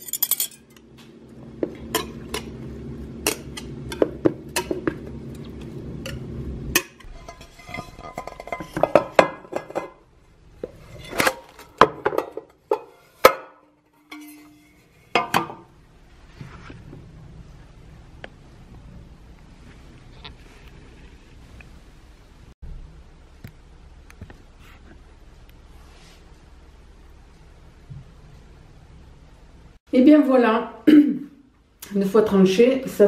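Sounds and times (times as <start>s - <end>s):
dishes and utensils clinking: 0.0s - 0.8s, 6.0s - 10.0s, 11.0s - 15.7s.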